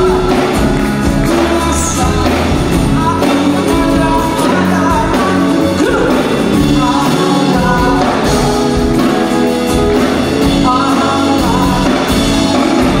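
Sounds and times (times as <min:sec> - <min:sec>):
acoustic guitar: 0:00.0 - 0:13.0
drum kit: 0:00.0 - 0:13.0
electric guitar: 0:00.0 - 0:13.0
man singing: 0:00.0 - 0:13.0
pop-rock band playing: 0:00.0 - 0:13.0.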